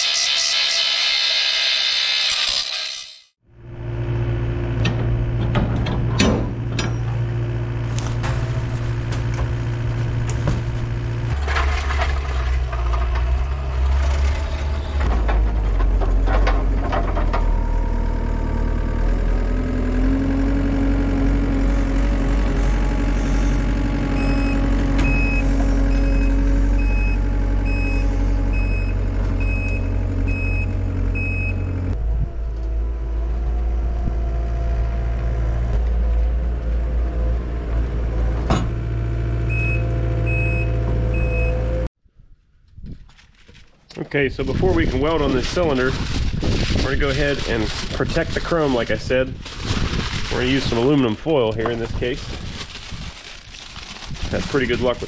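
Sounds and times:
diesel engine running: 3.4 - 41.9
backup alarm beeping: 24.2 - 31.7.

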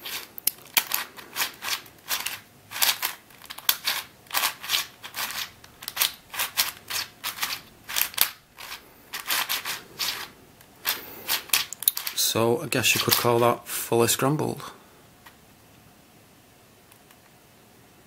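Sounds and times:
plastic puzzle layers clicking: 0.0 - 12.2.

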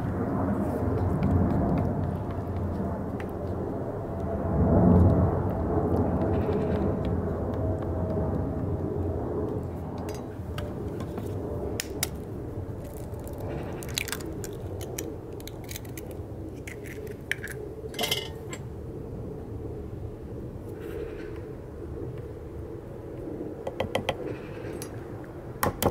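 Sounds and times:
low rumble: 0.0 - 11.7
eggs tapped and cracked: 12.8 - 17.6.

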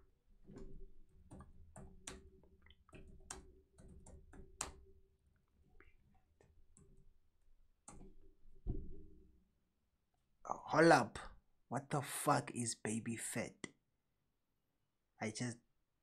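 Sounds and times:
keyboard and mouse clicks: 0.4 - 4.9, 7.8 - 8.1.

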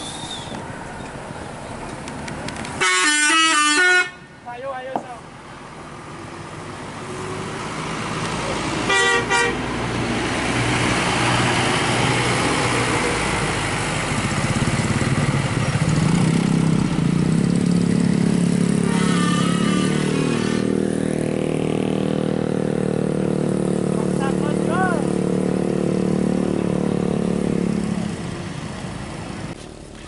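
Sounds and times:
bus engine pulling away: 0.0 - 2.8, 5.3 - 30.0
bus horn blasts: 2.8 - 4.3, 8.8 - 9.7, 18.7 - 20.6
motorcycle engine running: 14.1 - 19.8, 20.7 - 27.8
warbling horn-like tone: 18.8 - 20.6.

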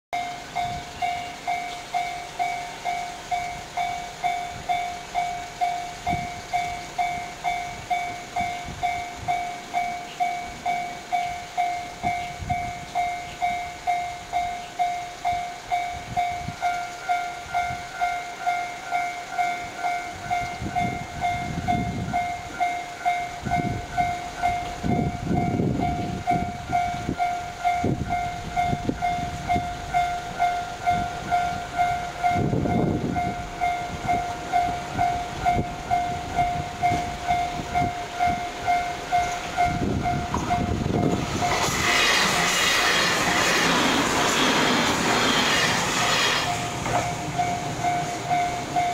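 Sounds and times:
higher-pitched crossing bell: 0.2 - 41.7, 46.5 - 48.9
level crossing bells dinging: 46.8 - 48.9.

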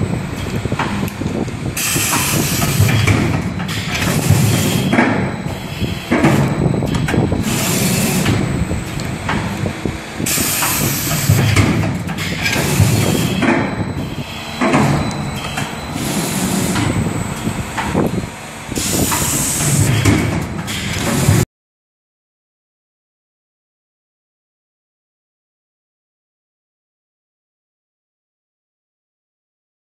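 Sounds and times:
machine mechanical rumble: 0.0 - 21.4
hissing bursts: 7.2 - 18.0, 18.7 - 20.0.

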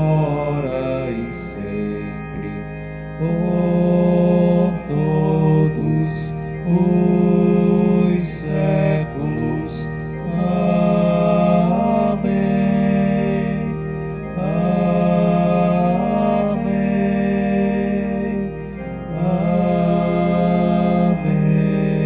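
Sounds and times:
slow liturgical singing: 0.0 - 22.0
sustained keyboard chords: 0.0 - 22.0.

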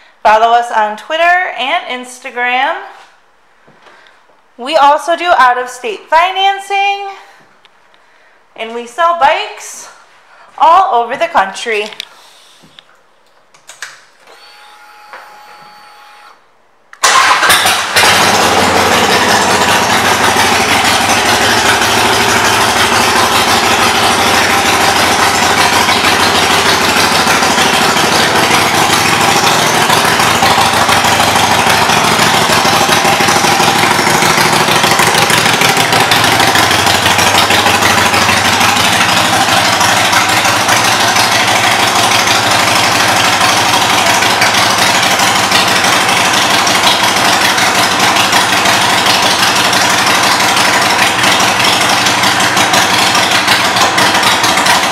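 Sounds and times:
motorcycle engine starting and idling: 17.0 - 54.9.

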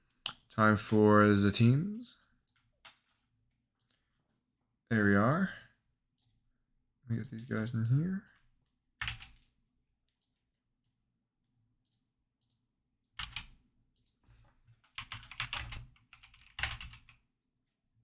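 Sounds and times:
keyboard typing: 9.0 - 9.6, 13.2 - 14.2, 14.8 - 17.2.

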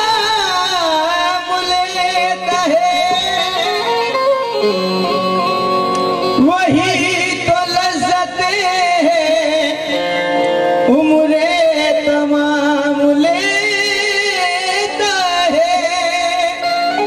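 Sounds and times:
man singing: 0.0 - 4.9, 6.3 - 17.0
harmonium: 0.0 - 17.0.

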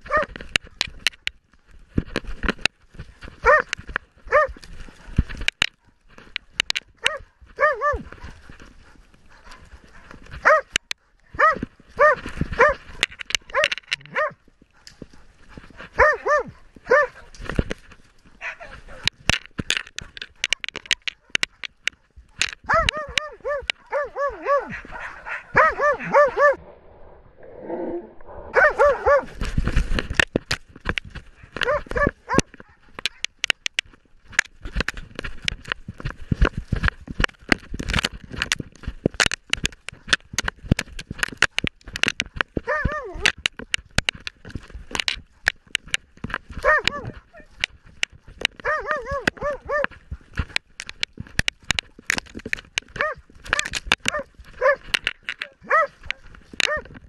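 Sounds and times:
dog barking: 0.0 - 0.3, 3.4 - 3.7, 4.3 - 4.6, 7.0 - 8.4, 9.3 - 10.7, 11.3 - 12.8, 13.5 - 14.9, 16.0 - 17.3, 22.7 - 26.6, 28.5 - 29.4, 31.6 - 33.3, 42.7 - 43.3, 46.6 - 47.2, 48.6 - 49.9, 53.0 - 54.8, 55.6 - 56.0, 56.6 - 56.9
branches crackling against camera: 0.0 - 57.0
brush and twigs scraping: 0.0 - 57.0.

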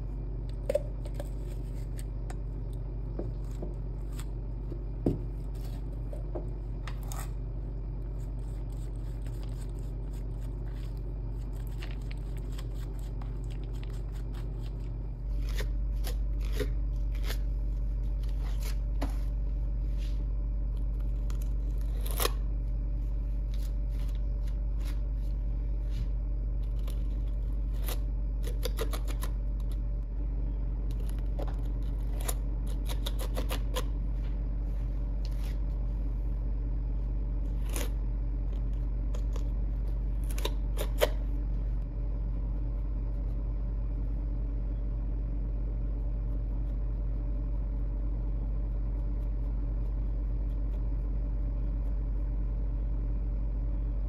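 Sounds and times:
steady low hum: 0.0 - 54.0
palette knife scraping paste: 8.0 - 18.9, 26.6 - 29.8, 30.9 - 33.9.

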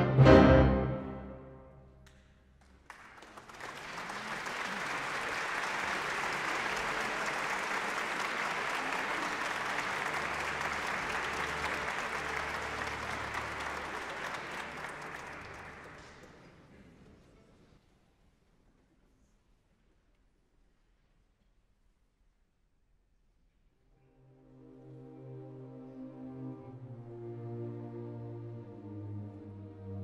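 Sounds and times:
orchestra and piano chord: 0.0 - 1.8
audience applause: 2.6 - 16.7.

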